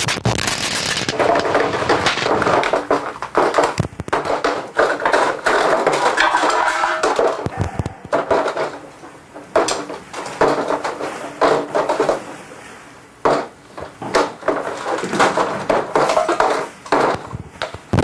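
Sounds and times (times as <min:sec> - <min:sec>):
packaging crinkling and clattering: 0:00.0 - 0:12.3, 0:13.3 - 0:18.0.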